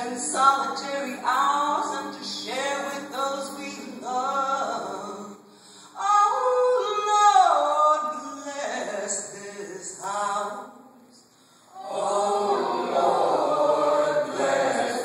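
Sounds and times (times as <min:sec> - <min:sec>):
woman singing with vibrato: 0:00.0 - 0:11.0
singer breath: 0:05.4 - 0:06.0, 0:11.2 - 0:11.8.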